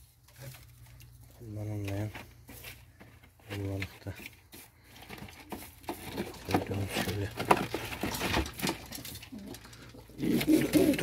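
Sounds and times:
plastic nest boxes rustling: 0.0s - 11.0s
pigeons cooing: 9.1s - 11.0s.

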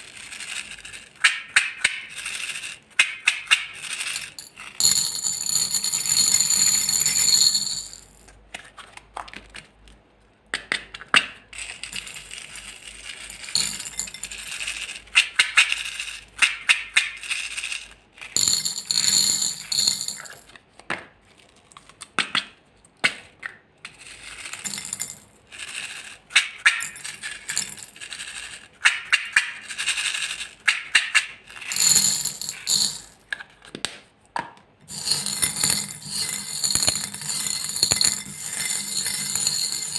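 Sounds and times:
beads clattering into glass bowl: 3.7s - 8.3s, 11.6s - 15.1s, 17.5s - 20.5s, 24.4s - 26.1s, 26.8s - 28.6s, 31.5s - 33.3s, 34.9s - 39.9s.

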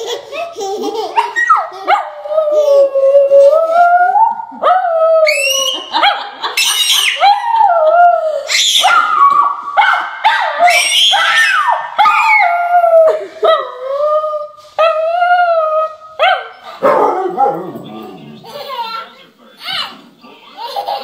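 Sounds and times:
baby squealing and laughing: 0.0s - 3.6s, 5.3s - 7.4s, 8.5s - 9.6s, 10.4s - 13.1s.

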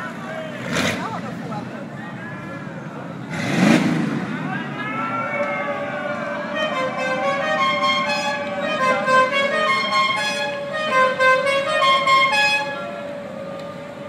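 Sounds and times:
musical car horn playing a tune: 6.4s - 13.1s.

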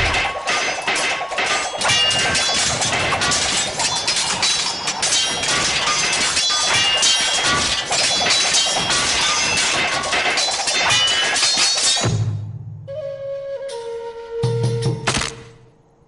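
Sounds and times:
crashing and shattering effects: 0.0s - 12.3s
busy cartoon music: 8.0s - 15.2s.

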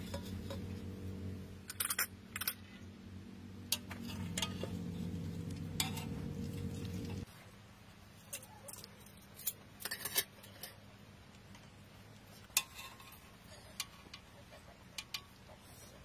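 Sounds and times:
faint low hum: 0.0s - 16.0s
spoon clinking on steel bowls: 3.7s - 7.2s.

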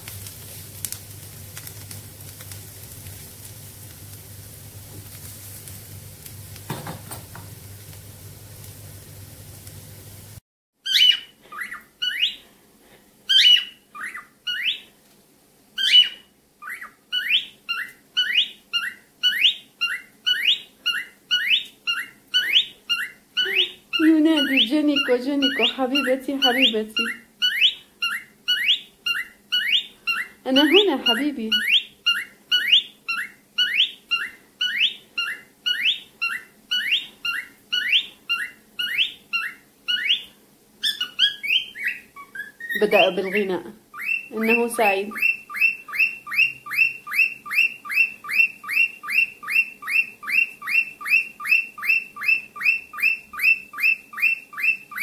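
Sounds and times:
cockatiel chirping: 10.8s - 12.4s, 13.3s - 14.9s, 15.8s - 55.0s.

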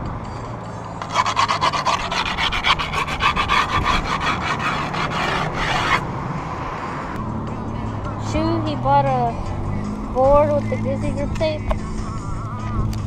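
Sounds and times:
rasping on grip tape: 1.0s - 6.0s.

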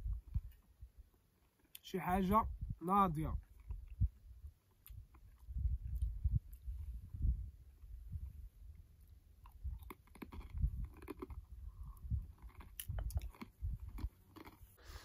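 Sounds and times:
chewing bread: 3.4s - 6.7s, 8.6s - 15.0s.

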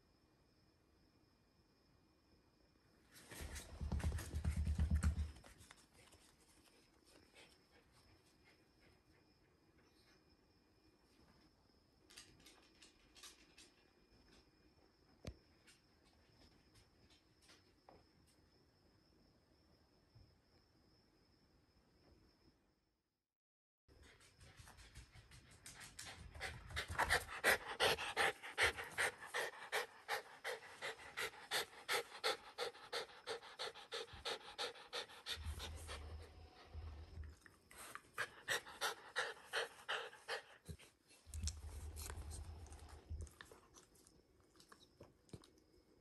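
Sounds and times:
dog panting rapidly: 24.6s - 36.7s, 38.2s - 40.9s.

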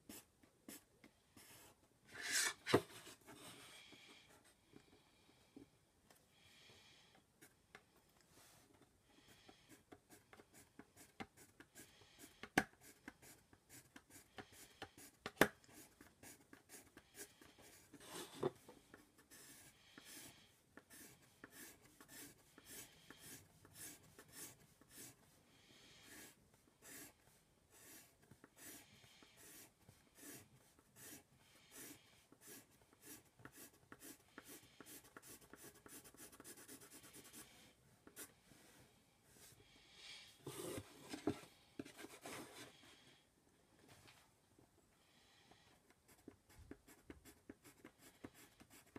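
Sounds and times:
pencil scratching on paper: 0.1s - 2.8s, 9.2s - 38.3s, 46.1s - 48.9s.

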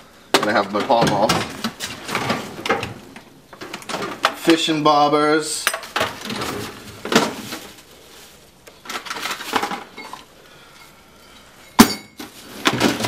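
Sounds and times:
tools rattling in metal drawer: 0.4s - 3.0s, 8.8s - 10.3s, 11.8s - 13.0s.

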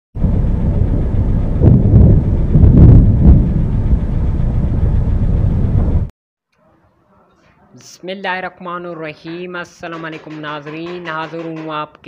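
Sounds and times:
wind buffeting microphone: 0.2s - 6.1s.

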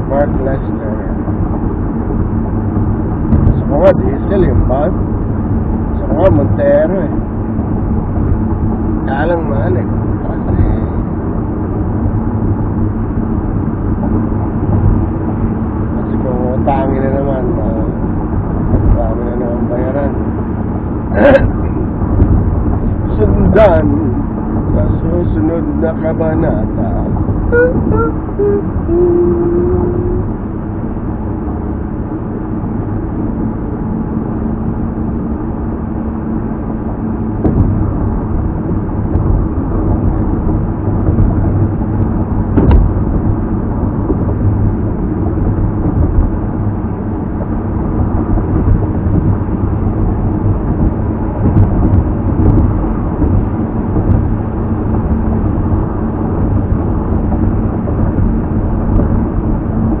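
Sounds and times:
car road and engine noise: 0.0s - 60.0s.

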